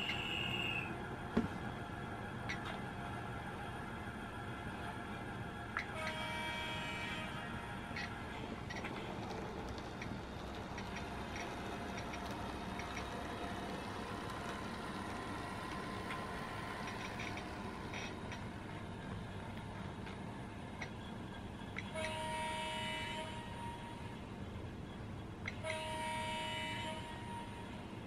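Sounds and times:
model train diesel engine sound: 0.0 - 28.0
two-tone horn: 5.9 - 7.4, 21.9 - 24.1, 25.6 - 27.7.

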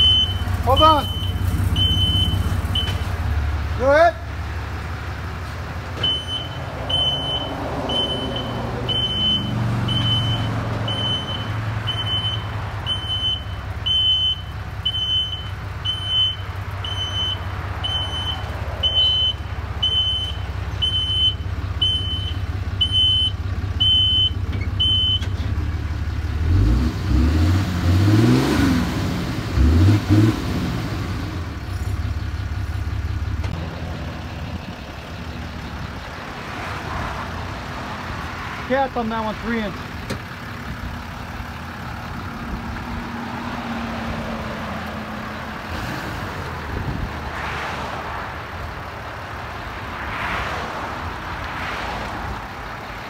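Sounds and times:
electronic beeps: 0.0 - 3.0
diesel engine idling and revving: 0.0 - 53.0.

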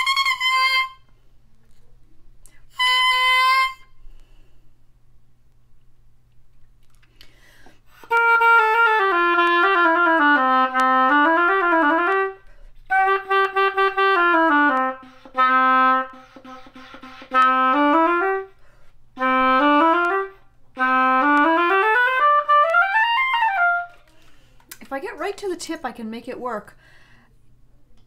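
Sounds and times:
oboe playing runs: 0.0 - 1.1, 2.7 - 4.0, 8.0 - 24.1.

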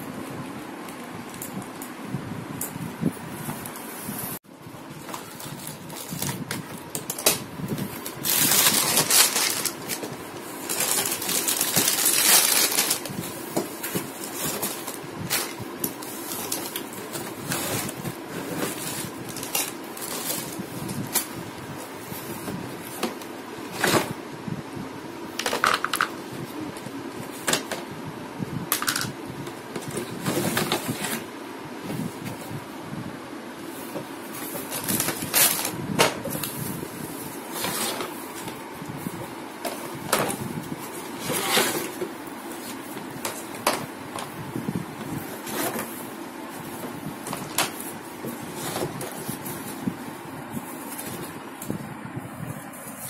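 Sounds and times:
plastic bags and cardboard crinkling: 3.4 - 24.2, 33.6 - 53.0
plastic parts clattering on tiles: 25.4 - 26.2, 28.7 - 29.1.

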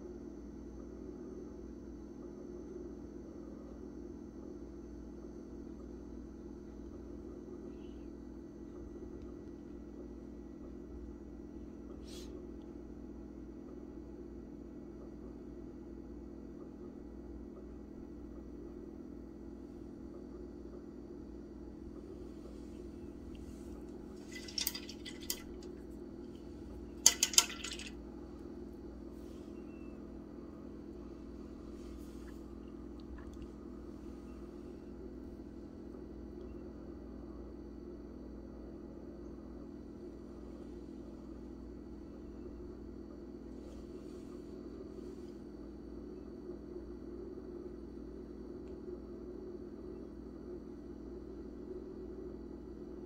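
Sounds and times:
low room hum: 0.0 - 53.0
small clinks: 26.9 - 28.0.

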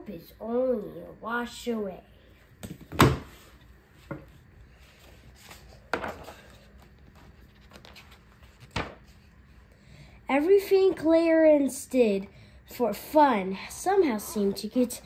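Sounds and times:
stiff pages turning: 4.8 - 9.3.

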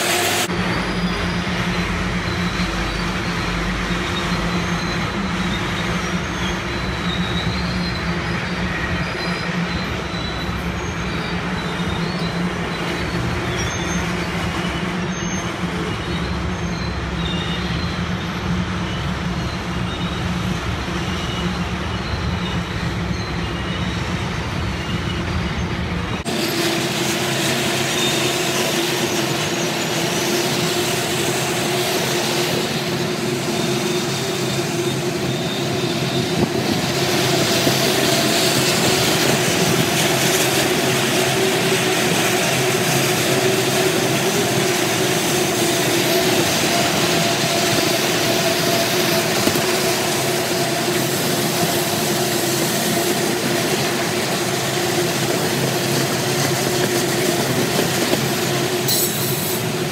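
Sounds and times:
freight train rumbling on rails: 0.0 - 59.9.

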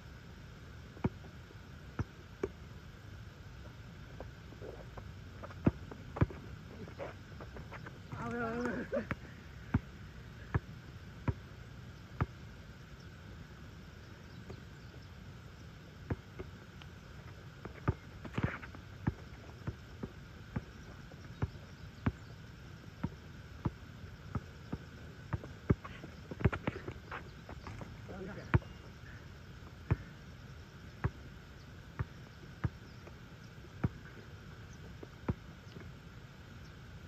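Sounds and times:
basketball bouncing on asphalt: 1.0 - 2.7, 3.6 - 11.5, 16.0 - 22.3, 23.0 - 28.9, 29.6 - 30.1, 31.0 - 31.3, 31.9 - 35.6.

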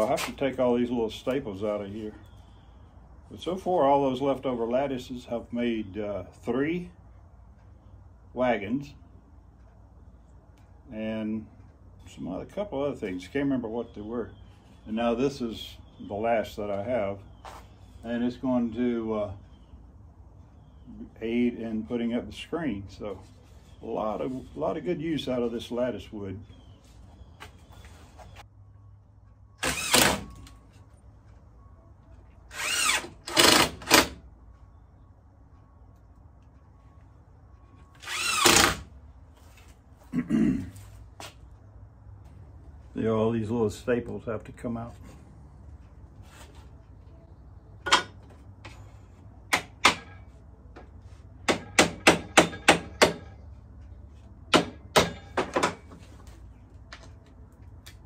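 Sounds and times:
cordless drill bursts: 29.6 - 30.3, 32.5 - 34.2, 38.0 - 38.9.

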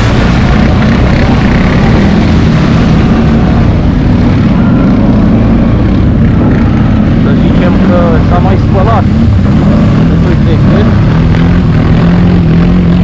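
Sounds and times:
water spraying off wheels: 0.0 - 4.0
quad engine running under load: 0.0 - 13.0.

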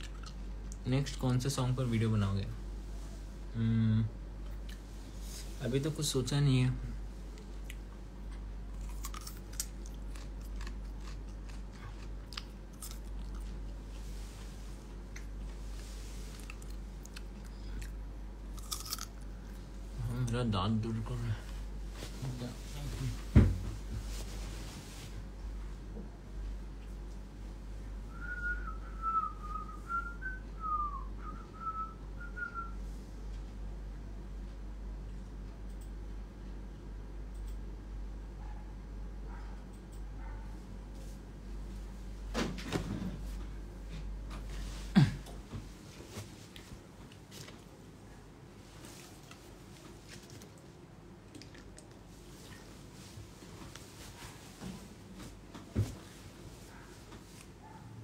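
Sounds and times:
person crunching a raw carrot: 8.7 - 13.6, 16.4 - 19.6
person whistling a tune: 28.1 - 32.8.

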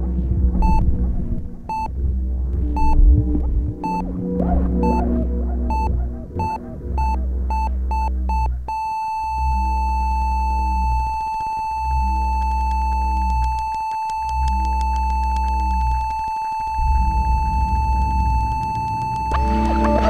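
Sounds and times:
rough low rumble: 0.0 - 8.8, 9.6 - 20.0
deep synthetic drone: 0.0 - 20.0
steady electronic tone: 0.0 - 20.0
high electronic beeps: 2.8 - 3.0, 5.7 - 20.0.

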